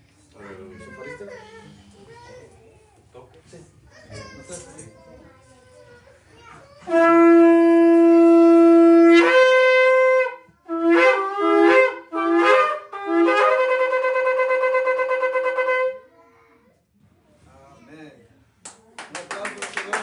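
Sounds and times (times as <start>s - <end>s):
shofar blasts: 6.9s - 16.1s.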